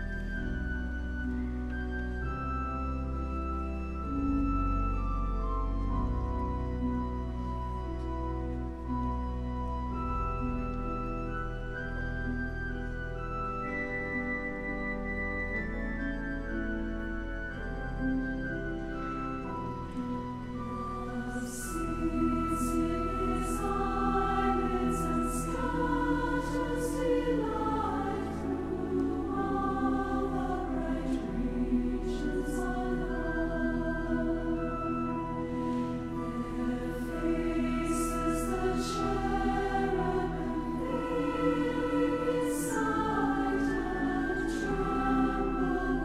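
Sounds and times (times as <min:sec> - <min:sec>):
pipe organ chords: 0:00.0 - 0:46.0
women's choir singing a hymn: 0:20.6 - 0:46.0.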